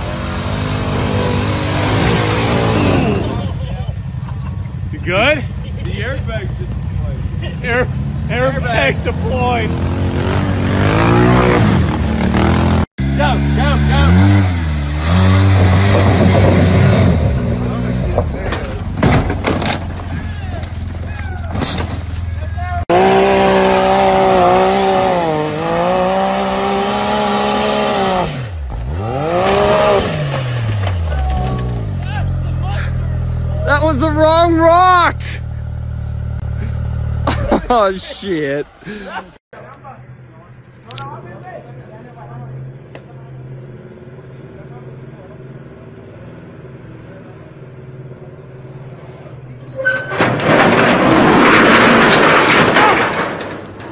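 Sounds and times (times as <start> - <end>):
utility vehicle engine revving: 0.0 - 4.9, 6.6 - 39.4.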